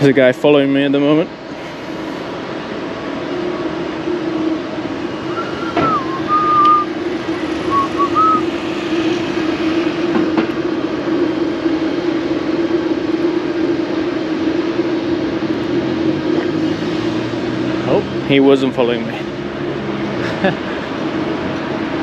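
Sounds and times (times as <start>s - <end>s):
urban background drone: 0.0s - 22.0s
hiss: 1.5s - 2.6s
whistled notes: 5.2s - 6.9s, 7.7s - 8.4s.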